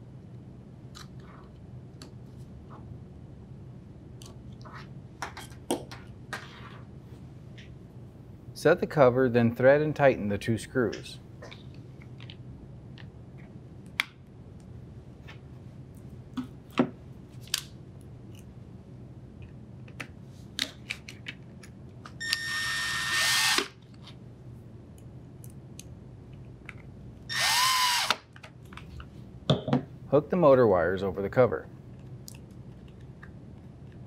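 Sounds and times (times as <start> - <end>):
drill driver spinning: 22.3 - 23.7, 27.3 - 28.2.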